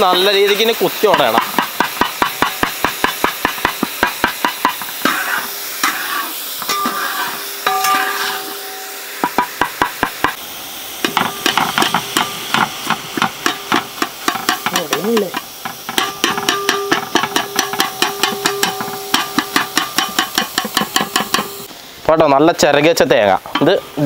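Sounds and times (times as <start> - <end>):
metal spatula knocking on pan: 1.0 - 5.2, 9.2 - 10.4, 11.0 - 21.6.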